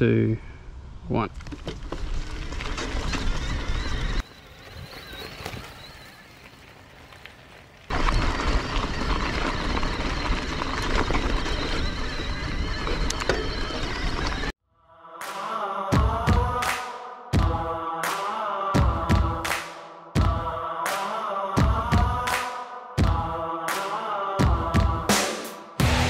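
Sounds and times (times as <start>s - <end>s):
tyres crunching on gravel: 4.2s - 11.9s.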